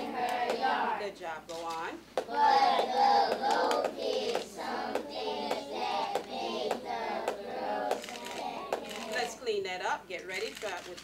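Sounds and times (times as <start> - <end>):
children chanting in unison: 0.0 - 1.0, 2.3 - 8.8.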